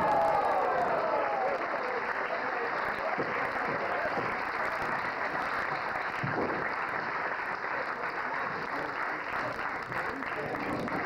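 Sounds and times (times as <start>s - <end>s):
crowd shouting: 0.0s - 2.0s
crowd applause: 0.0s - 11.0s.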